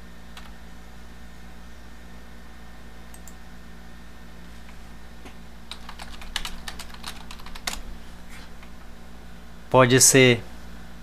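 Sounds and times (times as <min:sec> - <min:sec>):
faint steady hum: 0:00.0 - 0:11.0
computer keyboard typing: 0:05.7 - 0:07.8.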